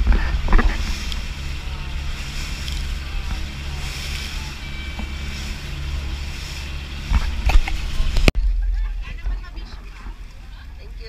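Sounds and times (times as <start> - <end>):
spray rushing along hull: 0.0 - 8.3
loud water splashes: 0.0 - 11.0
low engine hum: 0.0 - 11.0.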